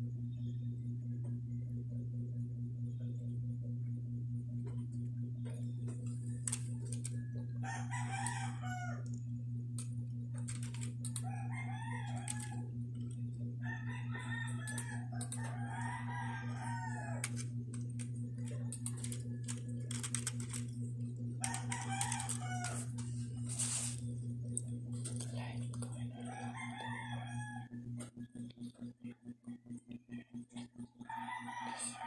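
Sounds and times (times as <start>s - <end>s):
low hum: 0.0s - 32.0s
rooster crowing: 7.0s - 9.2s, 11.1s - 12.8s, 13.6s - 17.5s, 21.4s - 23.7s, 26.1s - 28.0s, 31.0s - 32.0s.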